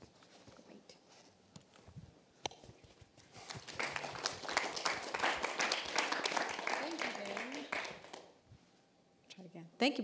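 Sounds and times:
audience applause: 3.5s - 8.3s.

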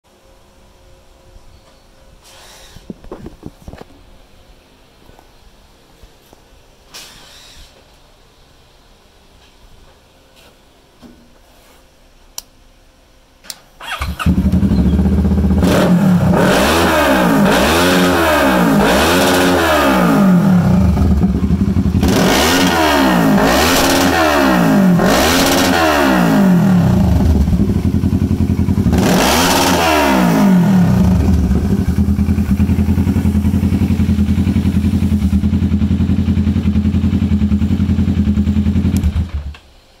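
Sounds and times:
motorcycle engine revving and idling: 13.9s - 39.6s.

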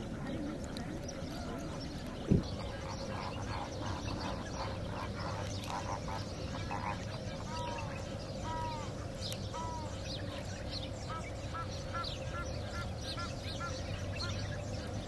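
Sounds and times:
flamingos honking: 1.5s - 10.0s, 11.0s - 14.5s.

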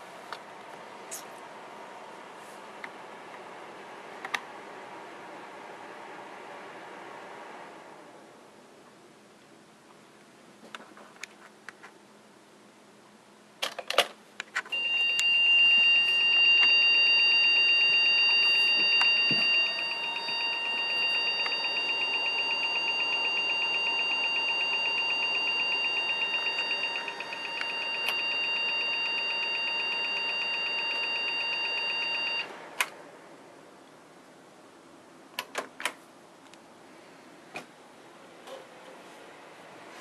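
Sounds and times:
pulsing high-pitched beep: 14.8s - 32.5s.

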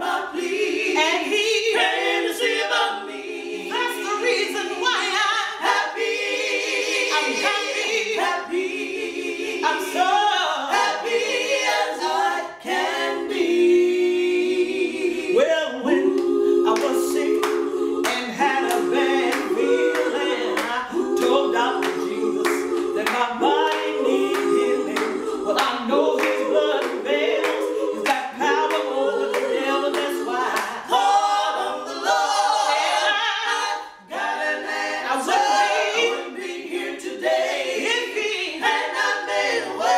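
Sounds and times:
women singing a cappella: 0.0s - 39.9s
hand claps: 16.1s - 30.8s.

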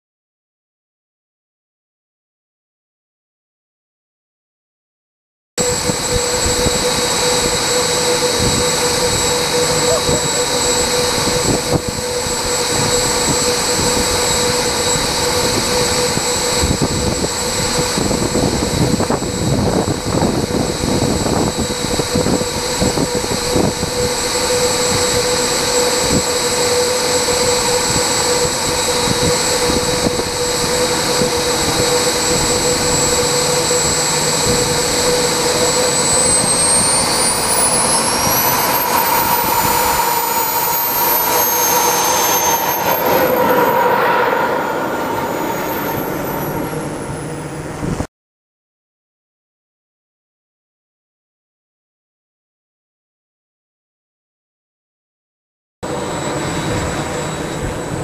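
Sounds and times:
jet turbine whining: 5.6s - 48.1s, 55.8s - 58.0s.

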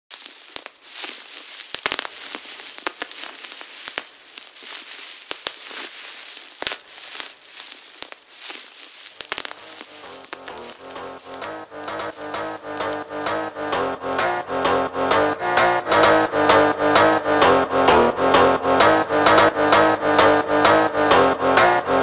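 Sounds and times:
crackling with clicks and pops: 0.0s - 22.0s
synth notes: 9.3s - 22.0s
bass line: 9.4s - 22.0s.

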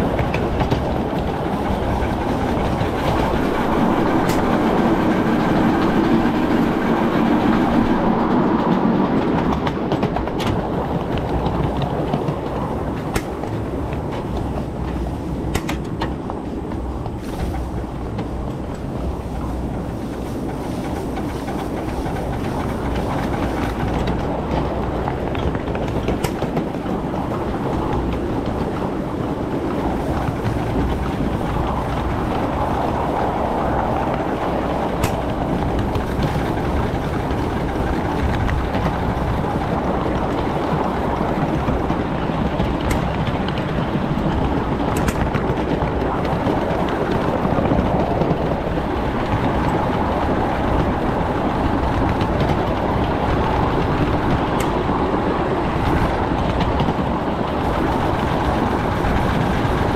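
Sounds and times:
steam locomotive running on track: 0.0s - 59.9s.

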